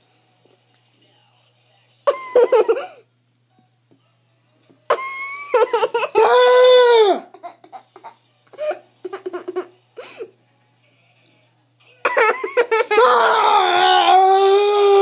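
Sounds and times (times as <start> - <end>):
child crying out: 6.2 - 7.3, 12.2 - 15.0.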